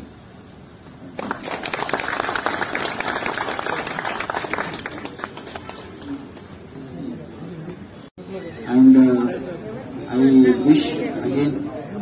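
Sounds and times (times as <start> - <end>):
small crowd clapping: 1.2 - 6.5.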